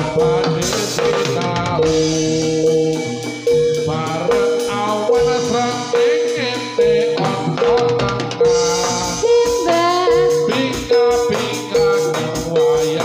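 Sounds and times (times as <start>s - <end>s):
metallophones and drums: 0.0s - 13.0s
woman singing: 5.2s - 13.0s.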